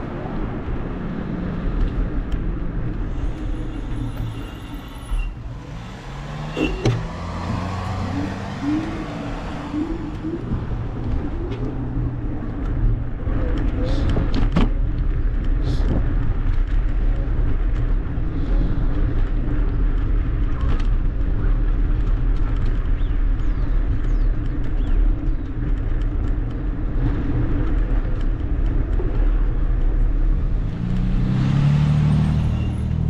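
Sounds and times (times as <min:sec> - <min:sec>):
street traffic rumble: 0:00.0 - 0:33.0
vehicle passing close: 0:05.4 - 0:12.3.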